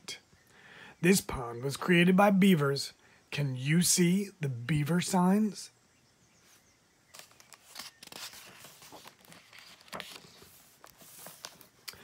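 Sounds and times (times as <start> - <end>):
book page turning: 7.1 - 12.0.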